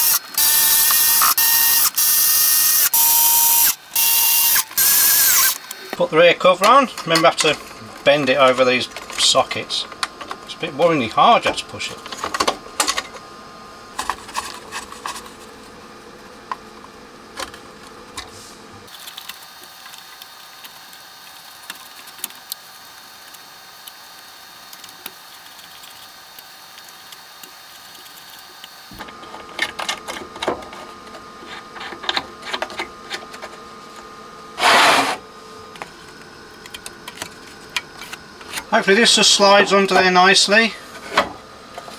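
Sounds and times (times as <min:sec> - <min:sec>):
short loud scrape: 0:34.6 - 0:35.2.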